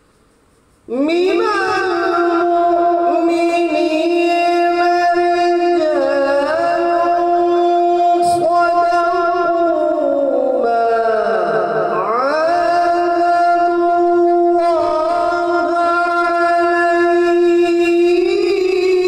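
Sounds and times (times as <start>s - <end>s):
man chanting melodically: 0.9s - 19.0s.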